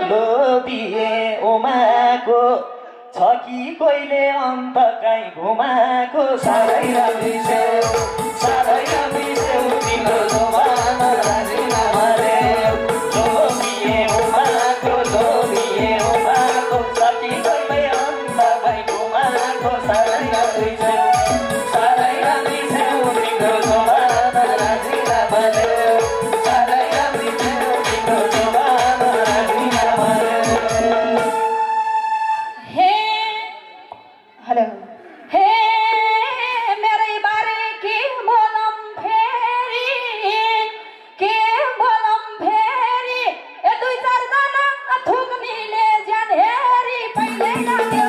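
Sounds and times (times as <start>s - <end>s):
woman singing folk song: 35.3s - 48.0s.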